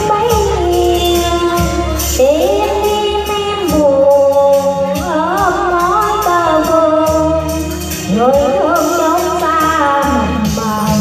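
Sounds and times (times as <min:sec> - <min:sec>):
amplified backing music: 0:00.0 - 0:11.0
woman singing: 0:00.0 - 0:11.0.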